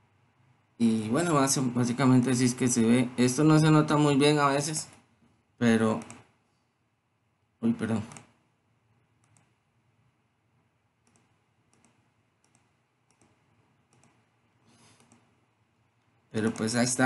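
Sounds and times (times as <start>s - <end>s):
computer mouse clicks: 5.9s - 6.3s, 8.0s - 8.4s, 9.2s - 9.6s, 11.0s - 15.3s, 16.0s - 16.8s.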